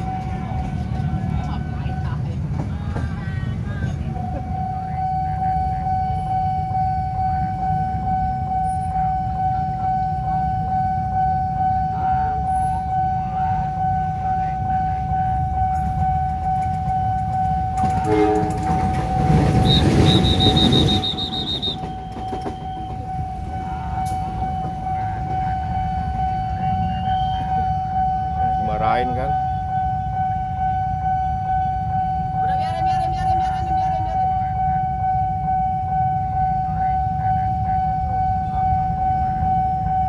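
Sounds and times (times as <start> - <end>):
level-crossing warning alarm: 0.0 - 40.0
low horn blast: 14.2 - 22.0
train rushing past: 15.4 - 27.9.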